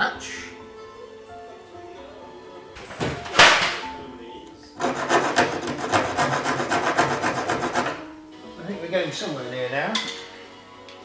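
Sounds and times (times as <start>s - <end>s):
hand file rasping on fibreglass: 4.8s - 8.1s.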